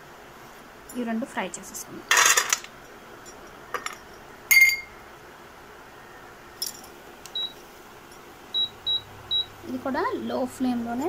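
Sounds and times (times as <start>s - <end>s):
glass bowl clinking on pan: 3.3s - 4.9s.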